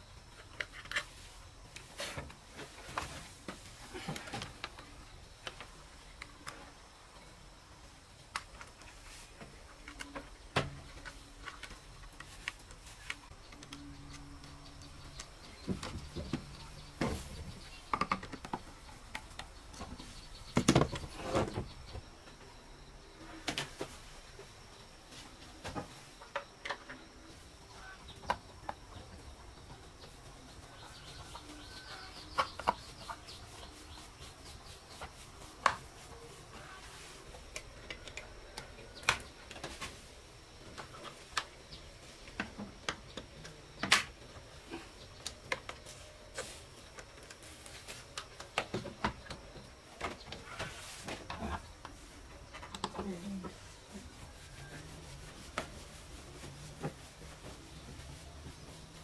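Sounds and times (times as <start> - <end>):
chickens calling: 26.8 - 39.8.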